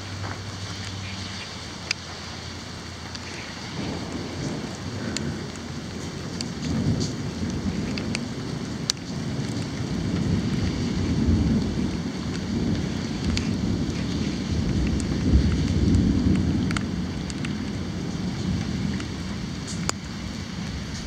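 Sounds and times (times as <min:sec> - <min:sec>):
steady rain: 0:00.0 - 0:21.0
thunder rumbling: 0:00.0 - 0:21.0.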